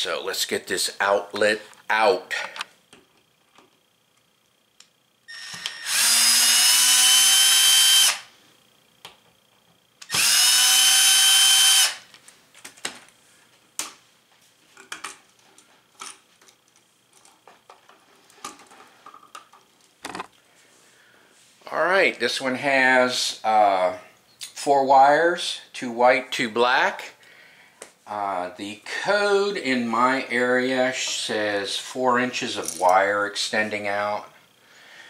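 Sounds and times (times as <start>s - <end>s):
cordless drill whining: 5.3s - 8.3s, 10.0s - 12.0s.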